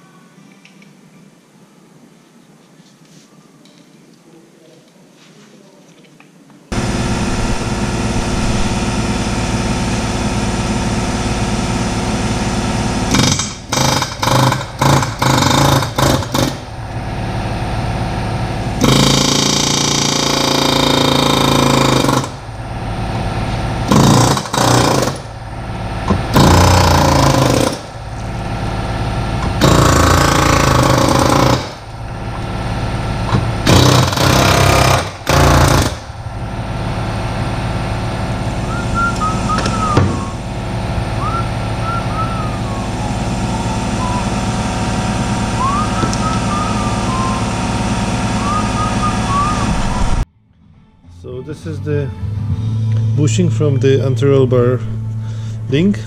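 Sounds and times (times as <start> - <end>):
machine hum: 6.7 - 56.0
pneumatic tool hammering metal: 13.0 - 16.7, 18.8 - 22.4, 23.9 - 25.3, 26.0 - 28.0, 29.4 - 31.9, 33.2 - 36.1, 39.1 - 40.4.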